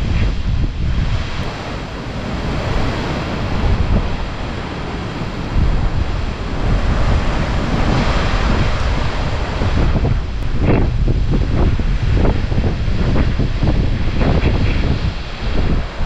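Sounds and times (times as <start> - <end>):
storm wind gusting through trees: 0.0 - 16.0
wind buffeting microphone: 0.0 - 16.0.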